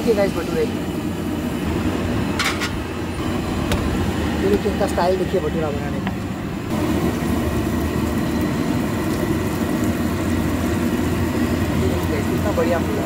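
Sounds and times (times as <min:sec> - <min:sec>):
steady low rumble: 0:00.7 - 0:13.0
bread sizzling in hot oil: 0:06.7 - 0:13.0.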